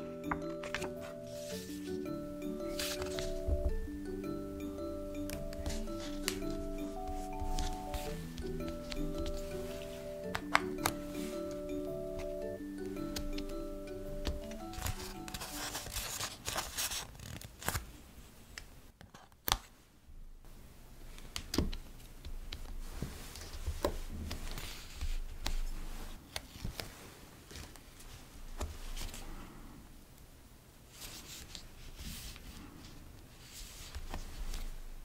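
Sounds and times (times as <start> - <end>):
plastic sheet crinkling: 14.6 - 17.9.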